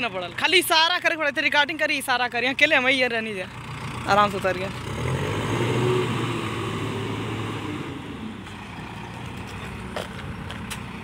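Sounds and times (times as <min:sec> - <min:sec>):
backhoe diesel engine driving off: 0:02.9 - 0:11.0.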